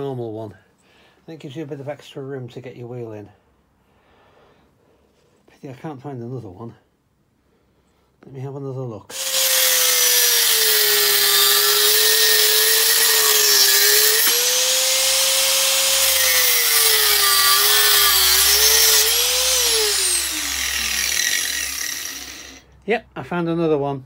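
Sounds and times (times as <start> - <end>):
rotary tool grinding steel: 9.1 - 22.6.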